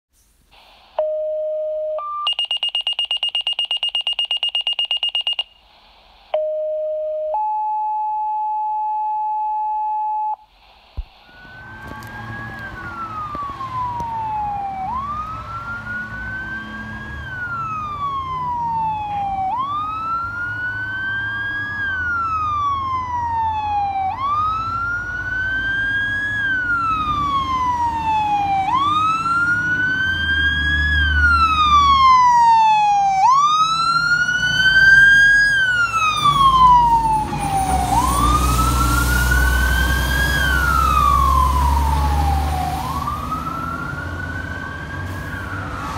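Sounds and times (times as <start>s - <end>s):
electronic dispatch tones: 0.6s - 10.5s
fire truck siren wailing: 11.2s - 45.9s.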